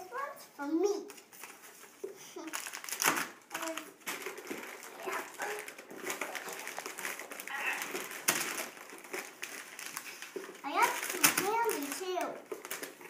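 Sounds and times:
wrappers rustling and crinkling: 1.0s - 13.0s
small child vocal sounds: 3.5s - 4.0s, 4.8s - 8.3s, 10.6s - 12.5s.

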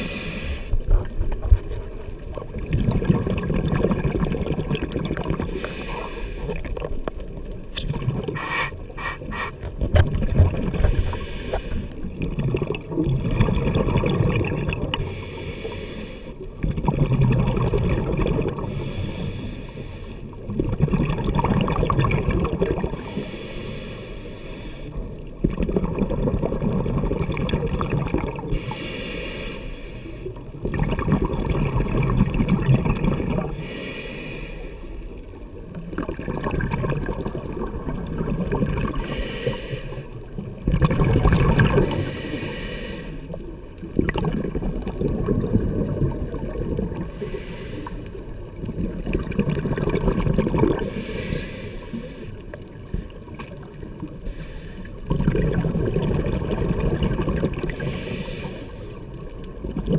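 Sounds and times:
regulator hissing inhale: 0.0s - 0.8s, 5.5s - 6.6s, 8.4s - 9.7s, 10.8s - 12.0s, 15.0s - 16.4s, 18.6s - 20.4s, 22.9s - 25.1s, 28.5s - 30.4s, 33.5s - 35.2s, 39.0s - 40.2s, 41.8s - 43.5s, 47.1s - 48.2s, 50.8s - 53.2s, 54.2s - 55.0s, 57.7s - 59.2s
exhaled bubbles rushing: 0.8s - 5.6s, 6.5s - 15.1s, 16.5s - 18.8s, 20.4s - 23.0s, 25.4s - 28.6s, 30.5s - 33.6s, 35.7s - 39.0s, 40.3s - 42.1s, 43.5s - 47.2s, 48.2s - 51.0s, 55.0s - 57.9s, 59.1s - 59.9s.

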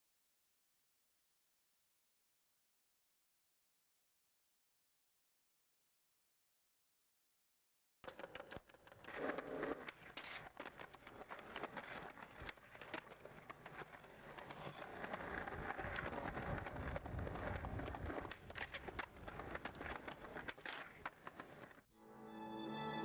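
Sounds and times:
skateboards clacking on ground: 8.0s - 21.8s
skateboard wheels rolling on concrete: 8.0s - 21.9s.

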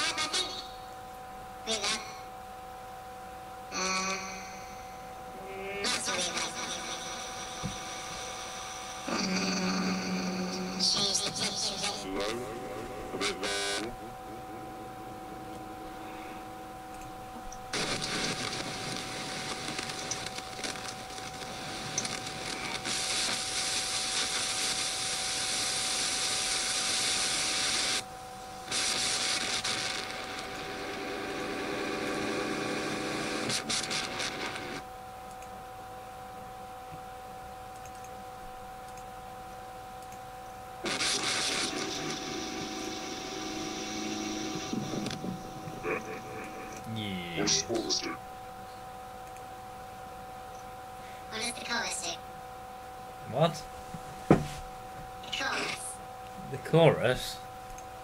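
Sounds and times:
harsh hissing voice effects: 3.7s - 16.5s, 40.8s - 48.3s, 51.3s - 52.2s
steady electronic tone: 7.3s - 17.9s, 40.9s - 48.8s.

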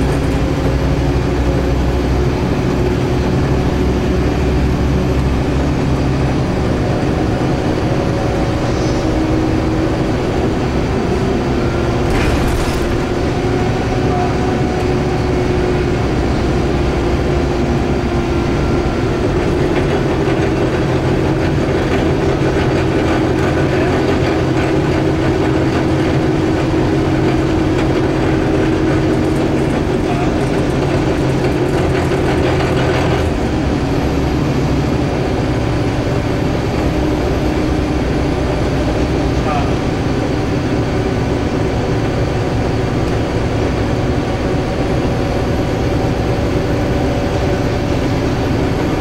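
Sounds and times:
bus engine drone: 0.0s - 49.0s
road and tyre noise: 0.0s - 49.0s.

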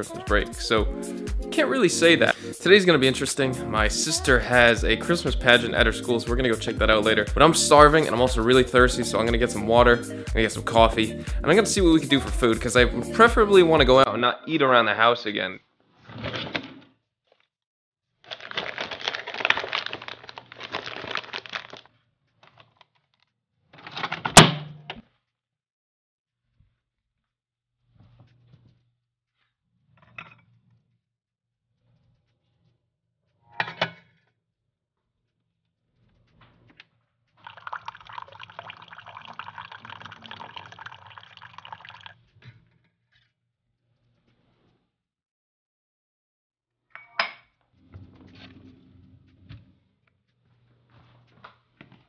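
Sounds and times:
plastic coffee pods rattling: 18.3s - 22.8s
coffee pouring into cup: 37.4s - 42.2s.

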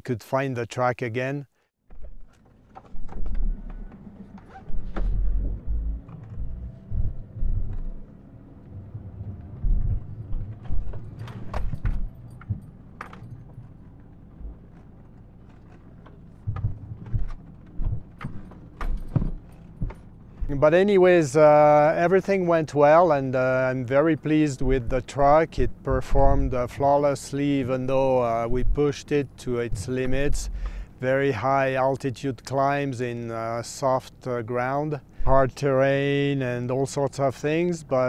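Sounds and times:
truck engine humming: 2.3s - 31.1s
truck jolting knocks and rattles: 9.5s - 20.7s.

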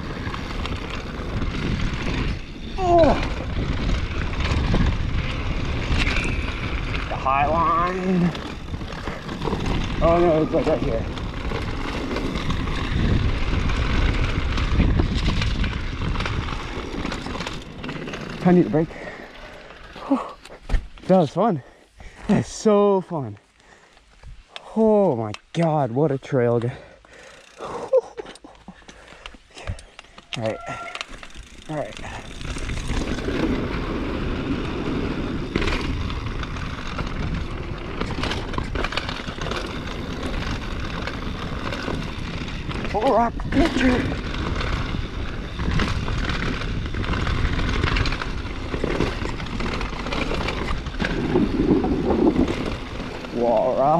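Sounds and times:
wind rushing over microphone: 0.0s - 18.6s, 32.0s - 53.9s
tyres rumbling on dirt: 0.0s - 23.3s, 28.7s - 53.9s
bike rattling: 0.0s - 53.9s.

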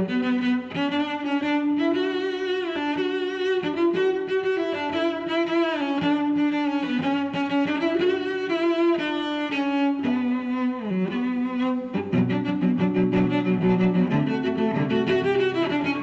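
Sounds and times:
string melody of held notes: 0.0s - 16.0s.

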